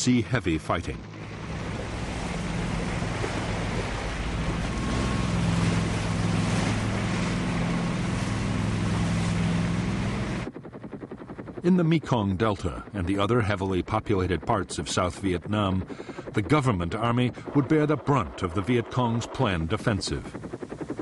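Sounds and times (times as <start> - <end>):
boat engine drone: 0.0 - 21.0
rushing spray and water: 1.4 - 10.4.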